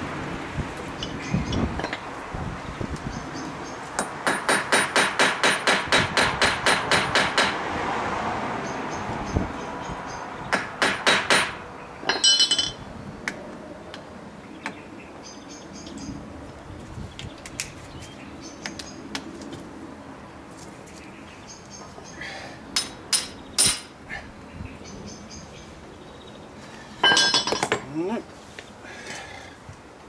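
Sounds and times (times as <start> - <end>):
ringing metallic clatter: 12.0 - 12.8, 27.0 - 27.9
tools clinking: 12.1 - 12.8, 27.0 - 27.9.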